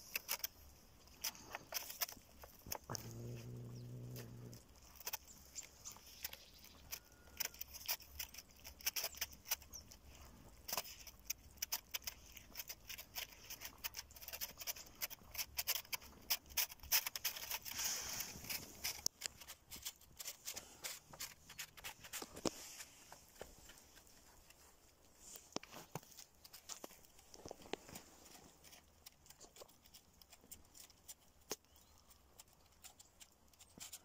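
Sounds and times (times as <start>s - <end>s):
cats crunching food: 0.0s - 34.0s.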